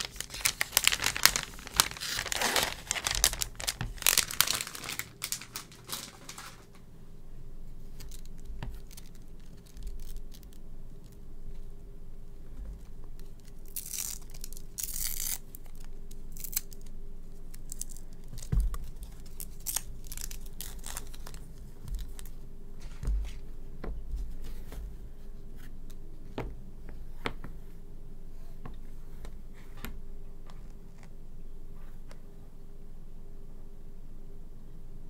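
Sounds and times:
cable coil rustling and tearing: 0:00.0 - 0:06.8, 0:07.8 - 0:11.2, 0:13.2 - 0:23.4.

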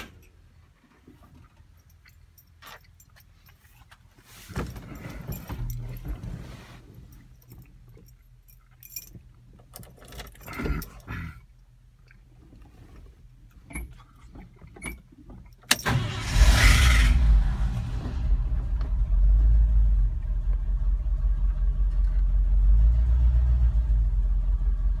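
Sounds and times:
truck engine starting and idling: 0:15.7 - 0:25.0.

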